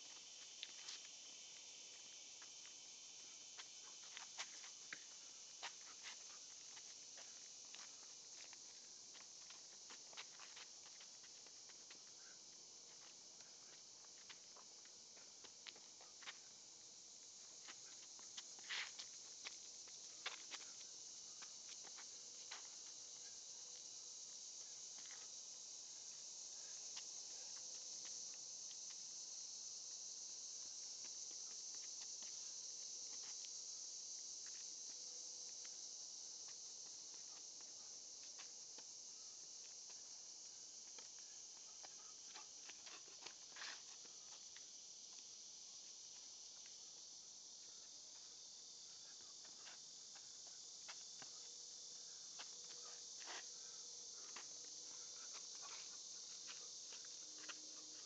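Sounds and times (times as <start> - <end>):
insect chorus: 0.0 - 58.0
sneakers scuffing on dirt: 3.4 - 12.1, 17.6 - 20.8.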